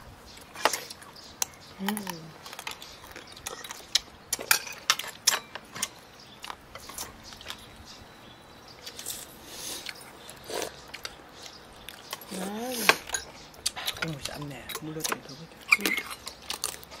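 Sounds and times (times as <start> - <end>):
person chewing: 8.8 - 14.3, 15.6 - 17.0.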